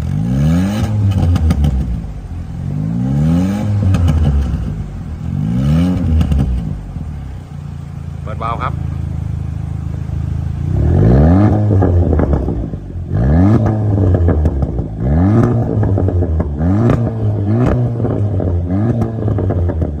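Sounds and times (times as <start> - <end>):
car engine revving: 0.0 - 20.0
exhaust pops and crackles: 0.8 - 2.4, 3.6 - 7.4, 8.2 - 20.0.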